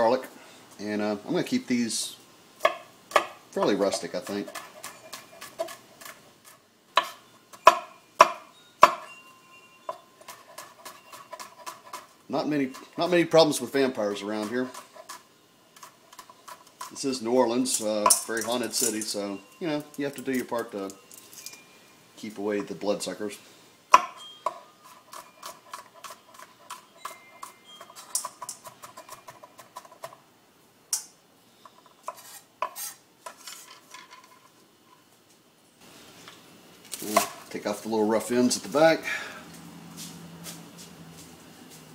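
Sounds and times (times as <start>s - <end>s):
kitchen utensils clinking: 16.1s - 21.7s, 24.2s - 30.1s.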